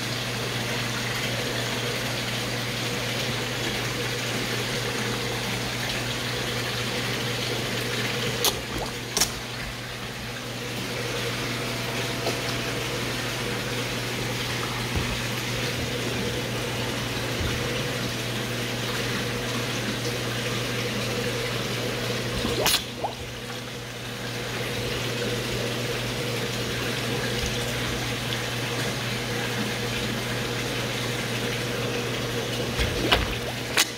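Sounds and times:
low hum of water pump: 0:00.0 - 0:33.9
rushing water: 0:00.0 - 0:33.9
sharp clicks or splashes: 0:08.4 - 0:09.6, 0:22.4 - 0:23.2, 0:32.8 - 0:33.9.

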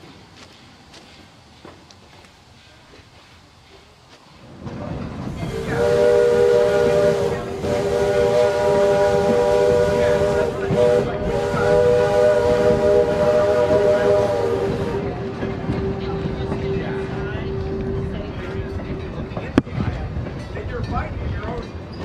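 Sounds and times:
steam locomotive whistle: 0:05.3 - 0:19.2.

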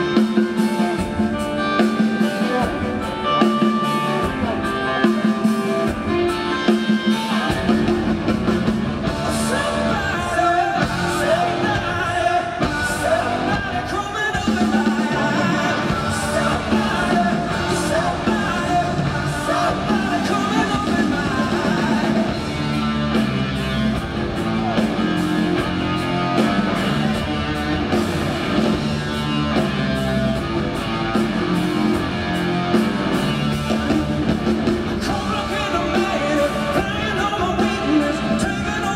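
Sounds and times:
man singing lead vocal: 0:00.0 - 0:08.2, 0:09.0 - 0:22.9, 0:33.6 - 0:38.9
distorted electric guitar: 0:00.0 - 0:38.9
drum kit: 0:00.0 - 0:38.9.

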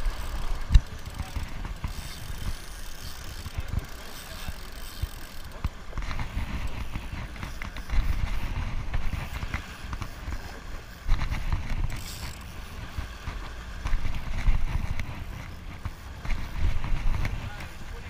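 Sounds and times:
fishing reel clicks and cranking: 0:00.0 - 0:17.9
water washing against boat hull: 0:00.0 - 0:18.0
wind rumbling on microphone: 0:00.0 - 0:18.0.

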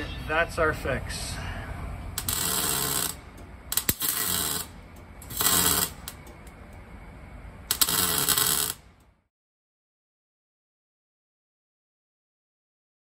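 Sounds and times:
arc welding crackle: 0:02.1 - 0:06.9, 0:07.6 - 0:09.2.

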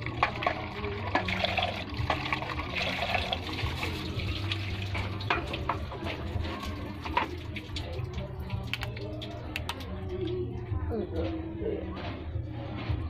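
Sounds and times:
water running and splashing: 0:00.0 - 0:09.4.

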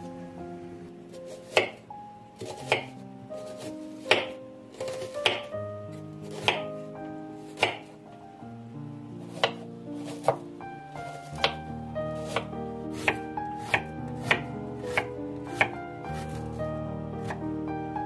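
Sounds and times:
soft background music: 0:00.0 - 0:18.0
knife chopping onion on board: 0:01.4 - 0:01.8, 0:02.4 - 0:02.9, 0:03.5 - 0:05.5, 0:06.3 - 0:06.7, 0:07.6 - 0:07.9, 0:09.3 - 0:10.4, 0:11.2 - 0:11.6, 0:12.2 - 0:16.5.

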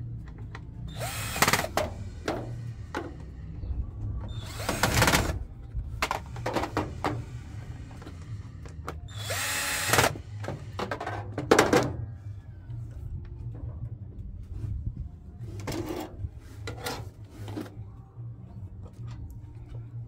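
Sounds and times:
cordless drill running: 0:00.9 - 0:01.7, 0:09.1 - 0:10.2.

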